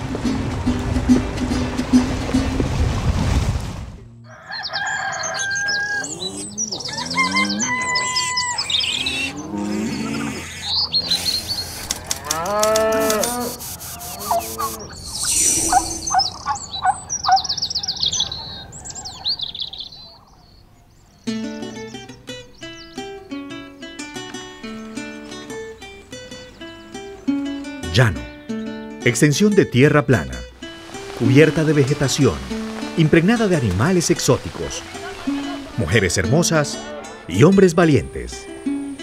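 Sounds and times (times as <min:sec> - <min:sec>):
bird calls and chirps: 0:04.3 - 0:24.0
cattle lowing: 0:05.3 - 0:20.5.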